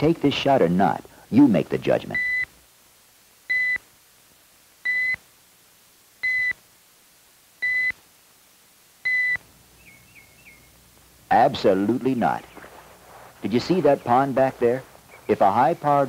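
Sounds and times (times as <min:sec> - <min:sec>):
short electronic beeps: 0:04.9 - 0:05.2, 0:06.2 - 0:06.6, 0:07.6 - 0:08.0.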